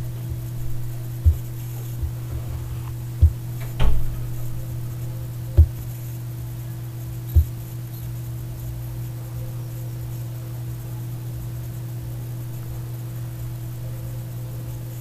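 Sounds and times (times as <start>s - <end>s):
low thumps: 0.0s - 5.9s
steady low hum: 0.0s - 15.0s.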